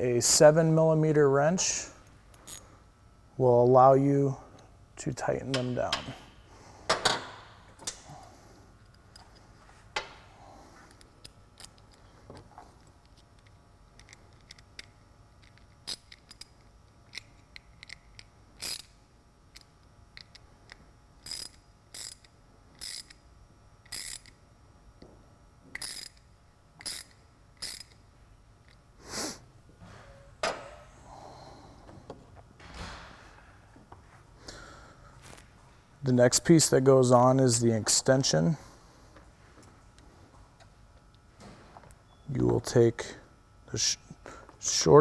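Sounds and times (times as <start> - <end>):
wrench ratcheting: 13.4 - 23.2, 23.8 - 24.4, 25.7 - 28.0.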